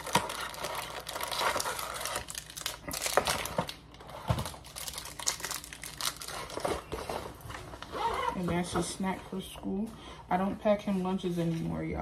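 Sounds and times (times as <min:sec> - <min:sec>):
plastic packaging crinkling: 0:00.0 - 0:08.5.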